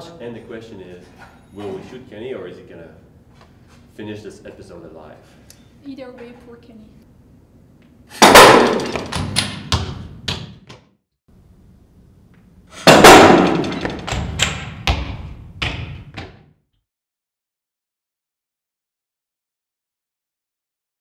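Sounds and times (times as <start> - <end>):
basketball cannon bang: 8.1 - 10.0, 12.8 - 15.8
ball bouncing: 8.2 - 10.8, 13.1 - 16.5.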